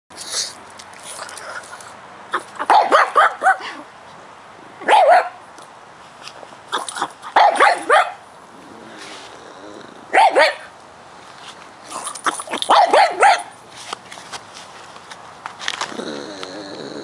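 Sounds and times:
dog barking: 2.6s - 3.7s, 4.8s - 5.4s, 7.4s - 8.2s, 10.1s - 10.7s, 12.3s - 13.5s.

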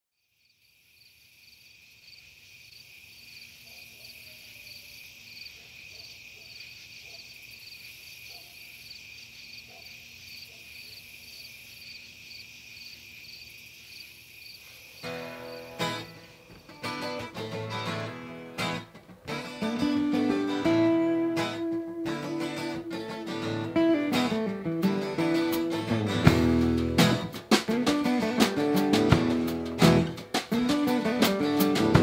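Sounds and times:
crickets chirping: 0.2s - 28.3s
acoustic guitar: 15.0s - 32.0s.

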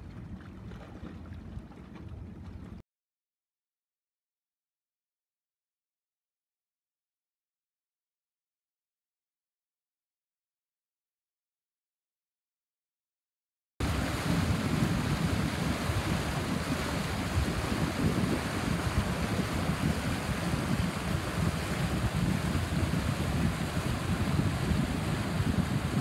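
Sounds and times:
water washing: 13.8s - 26.0s
wind buffeting microphone: 13.8s - 26.0s.

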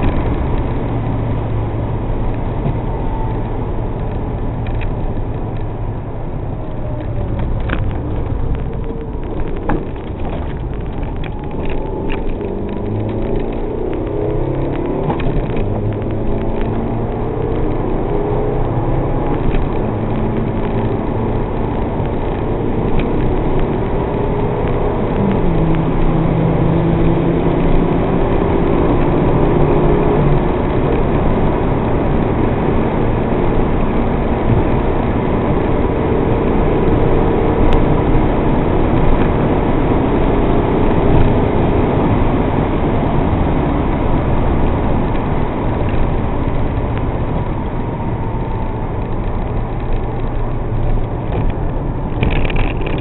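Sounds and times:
car engine accelerating: 0.0s - 53.0s
wind and road noise: 0.0s - 53.0s.

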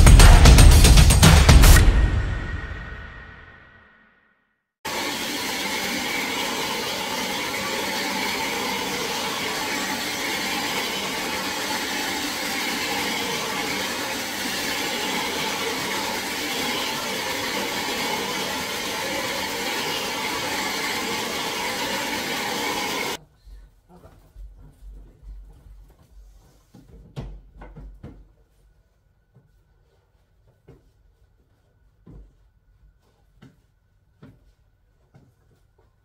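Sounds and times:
hair dryer blowing: 4.9s - 23.2s.

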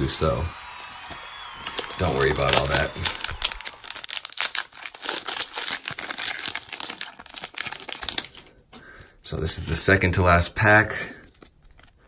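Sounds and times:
foil wrapper crinkling and tearing: 1.6s - 8.7s.

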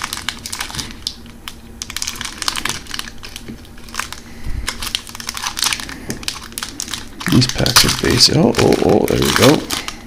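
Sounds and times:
foil wrapper crinkling: 0.0s - 10.0s.

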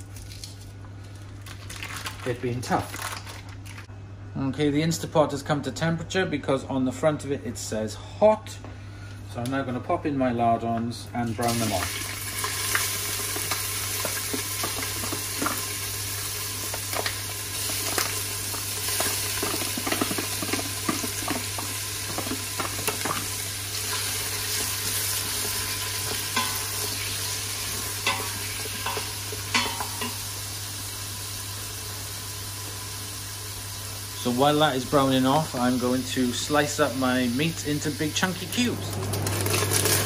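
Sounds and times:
bacon sizzling in oil: 11.4s - 40.0s.

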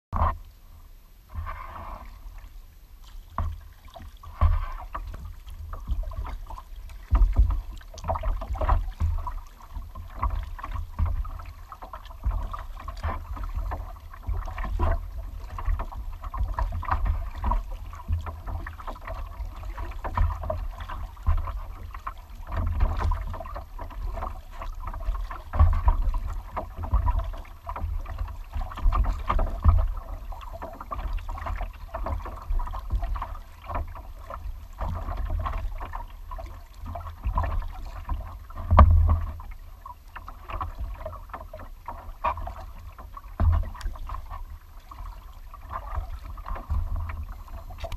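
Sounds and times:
kayak paddle strokes splashing: 0.2s - 47.9s
wind rumble on microphone: 34.5s - 39.5s.

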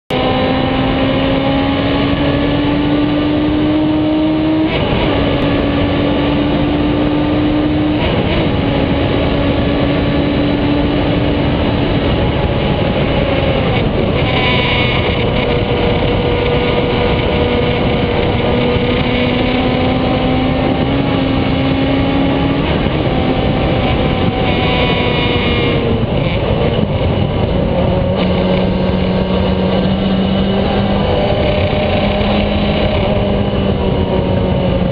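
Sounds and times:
racing car engine revving: 0.1s - 34.9s
wind and road noise: 0.1s - 34.9s.

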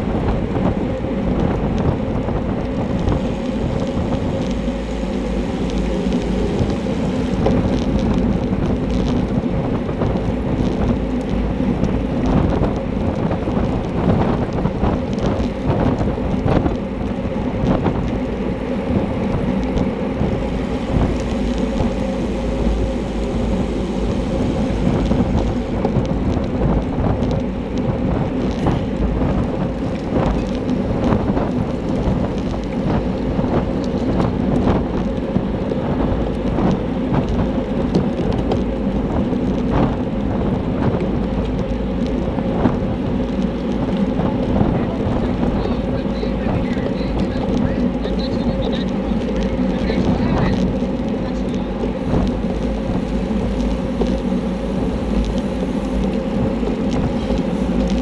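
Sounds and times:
road rumble: 0.0s - 58.0s
wind buffeting microphone: 0.0s - 58.0s
bicycle knocks and rattles: 24.8s - 45.8s.

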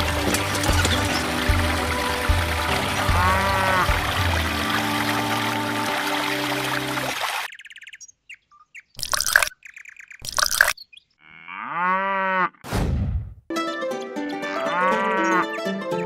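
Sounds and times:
music: 0.0s - 7.2s, 13.5s - 16.0s
water being poured: 0.0s - 7.5s, 9.0s - 9.5s, 10.2s - 10.8s
cow mooing: 3.0s - 6.3s, 11.2s - 12.6s, 14.7s - 15.4s
high bird chirps: 7.4s - 11.2s.

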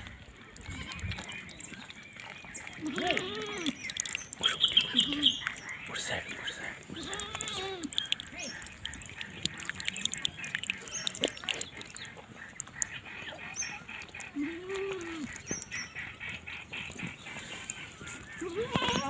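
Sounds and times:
goat kid lapping water: 0.0s - 19.0s
goat kid bleating: 0.6s - 1.2s, 2.8s - 3.8s, 6.9s - 8.0s, 14.3s - 15.4s, 18.4s - 19.0s.

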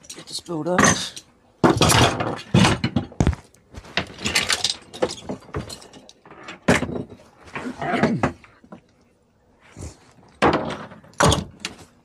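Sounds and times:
metal hooks clanking and rattling: 4.1s - 7.0s.

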